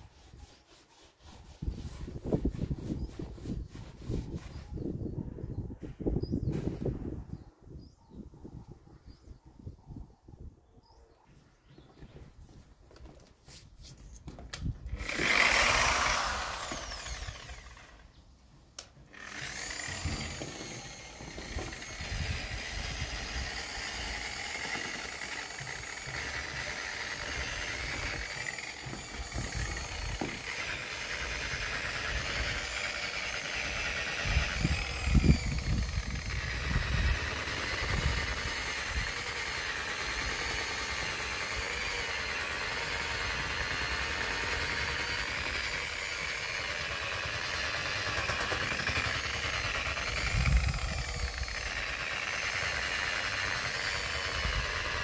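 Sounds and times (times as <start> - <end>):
rotary polisher whining: 15.0 - 18.2, 18.9 - 55.0.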